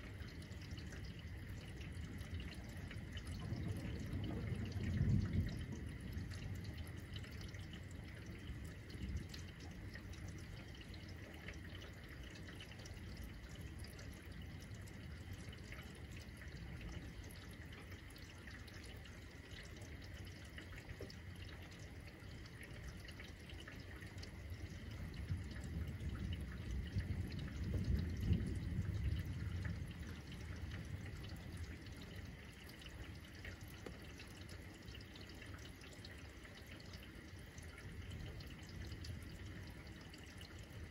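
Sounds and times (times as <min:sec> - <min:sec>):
rain pattering: 0:00.0 - 0:40.9
distant thunder rumble: 0:00.6 - 0:10.9, 0:24.6 - 0:33.1.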